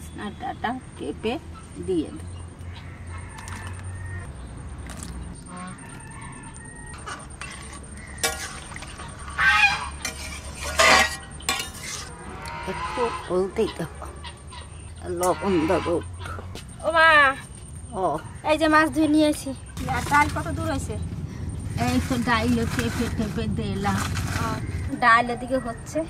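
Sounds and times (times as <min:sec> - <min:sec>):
fowl honking: 0:05.4 - 0:06.4, 0:07.0 - 0:10.2, 0:12.2 - 0:16.4.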